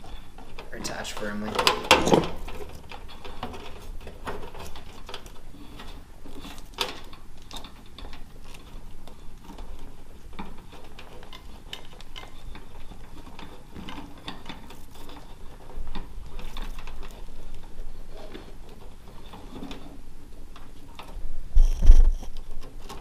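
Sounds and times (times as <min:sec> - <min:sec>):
wires rustling: 0:00.0 - 0:23.0.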